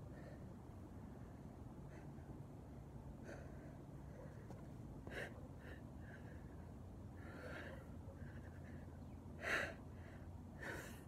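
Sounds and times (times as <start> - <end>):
man breathing hard: 5.1 - 11.0.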